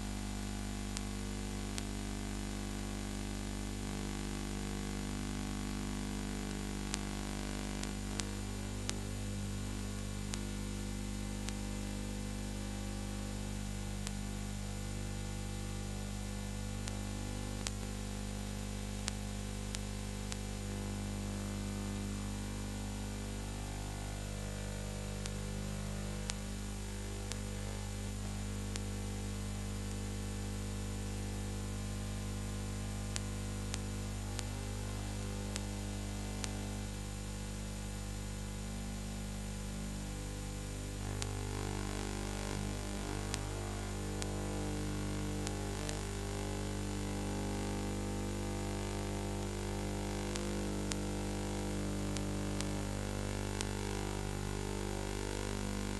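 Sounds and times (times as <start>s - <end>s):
electrical mains hum: 0.0s - 55.9s
small clicks: 16.8s - 17.9s.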